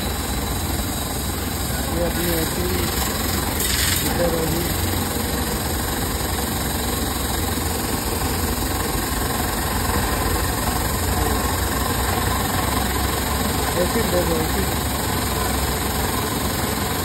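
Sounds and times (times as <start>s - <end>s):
pressure washer spraying: 2.1s - 4.8s.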